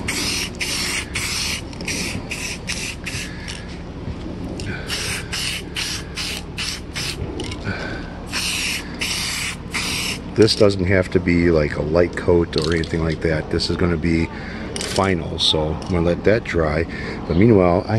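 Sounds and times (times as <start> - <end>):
spray paint can hissing: 0.0 - 3.4, 4.9 - 7.2, 8.3 - 10.2.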